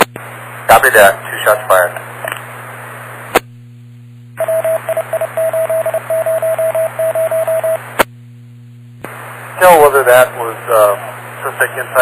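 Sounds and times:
radio hiss: 0.0 - 3.4, 9.0 - 12.0.

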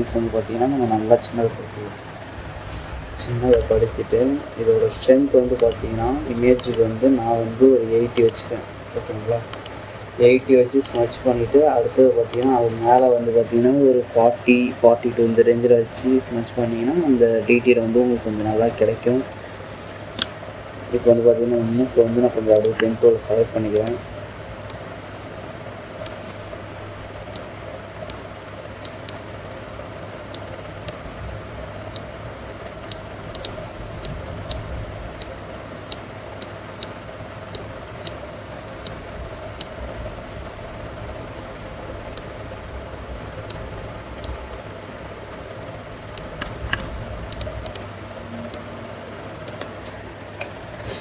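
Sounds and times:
steady low hum: 0.0 - 51.0
computer mouse clicking: 5.5 - 6.9, 8.1 - 8.5, 9.5 - 9.8, 10.8 - 11.2, 12.3 - 12.6, 22.5 - 23.0, 23.7 - 24.0, 26.0 - 26.4, 28.8 - 29.2, 32.8 - 34.6, 39.6 - 39.8, 43.4 - 43.6, 46.1 - 47.9.

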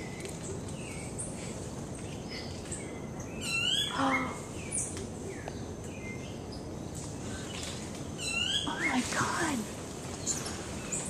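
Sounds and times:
sweeping calls: 2.0 - 11.0
animal chirps and peeping calls: 2.2 - 5.4, 8.2 - 9.1.

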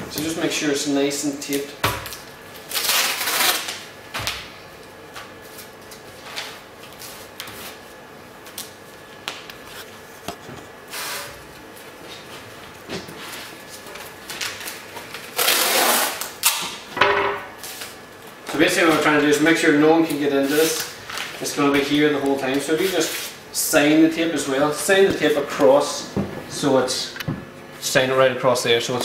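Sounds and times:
adhesive tape pulled off roll: 2.6 - 3.8, 14.5 - 16.6
paper rustling: 20.0 - 23.4.

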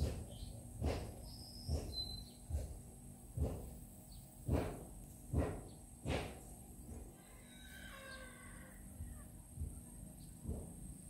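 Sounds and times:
bird chirp: 0.2 - 0.6, 1.2 - 2.6
footsteps walking: 0.8 - 3.9.

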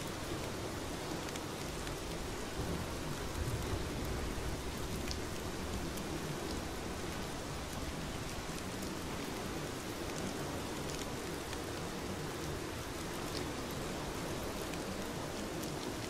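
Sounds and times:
steady rain hiss: 0.0 - 16.0.

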